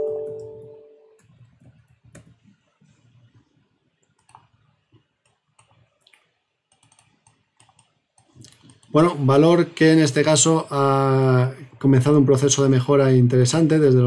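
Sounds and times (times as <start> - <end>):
keyboard and mouse clicks: 1.2 - 9.0.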